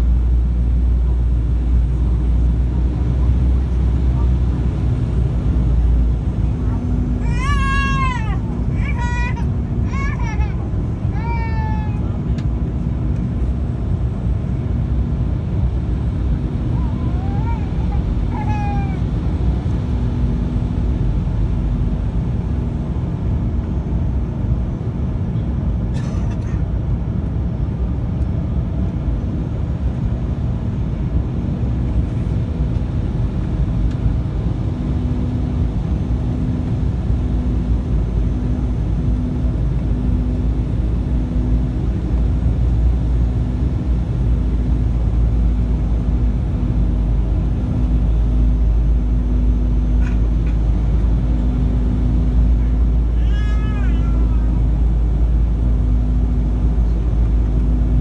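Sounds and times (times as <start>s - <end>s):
airplane cabin engine rumble: 0.0s - 58.0s
pulsing low hum: 26.7s - 58.0s.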